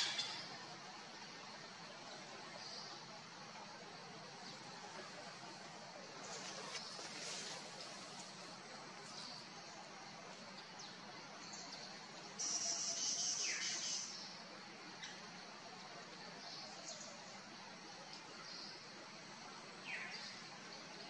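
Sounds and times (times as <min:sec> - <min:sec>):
faint insect hum: 0:00.0 - 0:21.0
faint chirps: 0:09.0 - 0:18.9.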